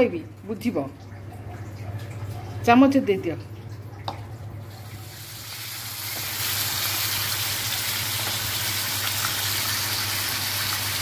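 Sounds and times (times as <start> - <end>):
hot oil sizzling: 4.8 - 11.0.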